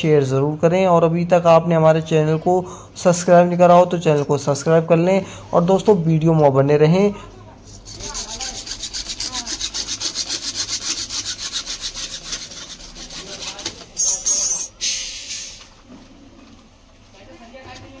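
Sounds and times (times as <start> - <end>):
hacksaw sawing plastic pipe: 7.7 - 13.8.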